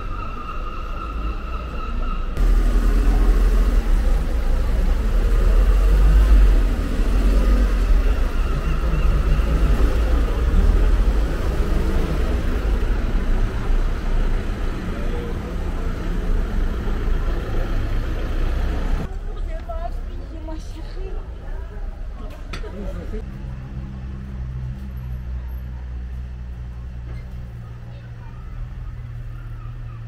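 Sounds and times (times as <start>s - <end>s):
low street rumble: 0.0s - 30.0s.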